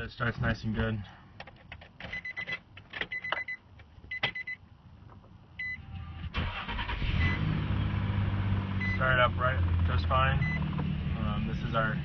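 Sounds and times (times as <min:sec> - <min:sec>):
dashboard warning chime beeping: 0:02.1 - 0:04.6, 0:05.6 - 0:05.9, 0:07.1 - 0:07.5, 0:08.8 - 0:09.1, 0:10.4 - 0:10.7
engine cranking and idling: 0:06.0 - 0:09.0.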